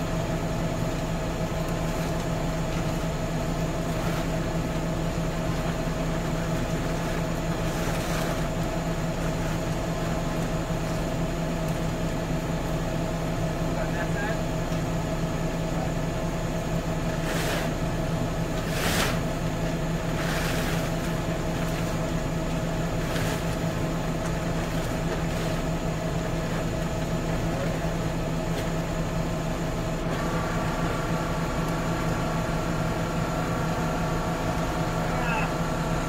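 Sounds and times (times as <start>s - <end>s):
tractor diesel engine humming: 0.0s - 36.0s
high-pitched whine: 30.1s - 36.0s.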